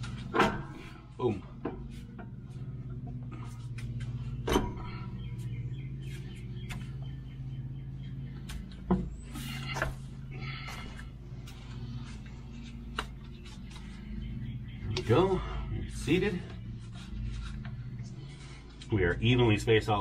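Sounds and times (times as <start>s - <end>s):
metal knocks and clunks: 0.0s - 5.2s
steady low hum: 0.0s - 20.0s.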